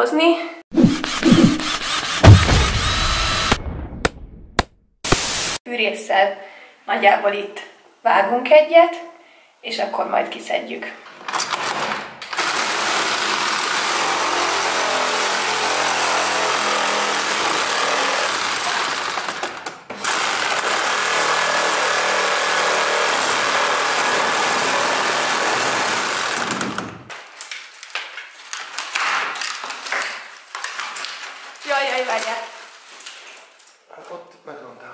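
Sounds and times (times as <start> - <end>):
reciprocating saw cutting wood: 0.7 - 3.6, 19.9 - 27.1.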